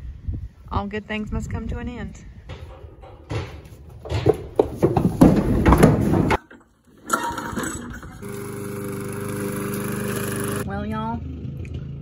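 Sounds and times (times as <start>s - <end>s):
hooves knocking on wooden boards: 2.5s - 6.4s
small mower engine running: 8.1s - 10.7s.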